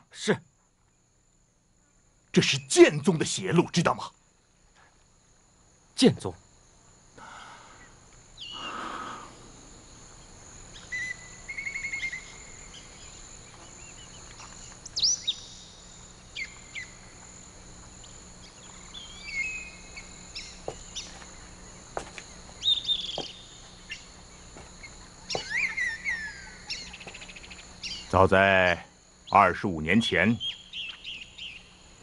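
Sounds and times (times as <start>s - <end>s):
insects droning: 0.0s - 32.0s
birds chirping and calling: 7.7s - 9.2s, 10.7s - 17.2s, 18.0s - 21.6s, 22.3s - 28.3s, 29.2s - 31.8s
bird trill: 7.8s - 9.0s, 10.7s - 17.1s, 18.4s - 21.4s, 22.6s - 24.1s, 24.8s - 28.3s, 29.2s - 31.8s.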